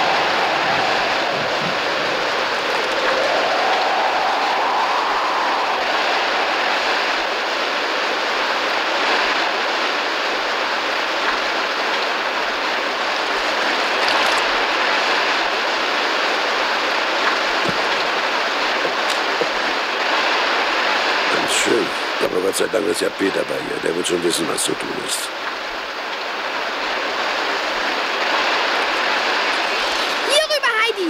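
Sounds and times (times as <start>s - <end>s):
faint wind whistle: 0.0s - 8.9s
pouring rain hiss: 0.0s - 31.0s.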